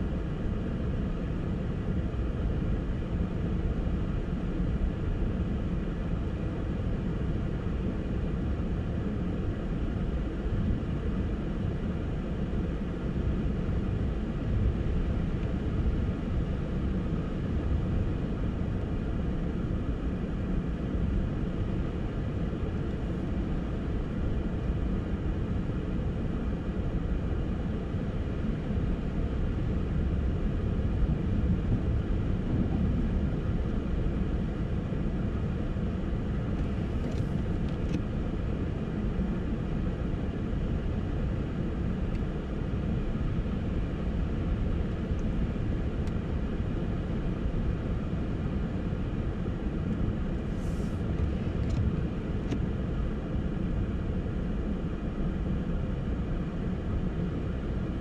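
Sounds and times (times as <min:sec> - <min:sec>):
car engine and tyres rumbling: 0:31.0 - 0:38.2, 0:50.0 - 0:52.7.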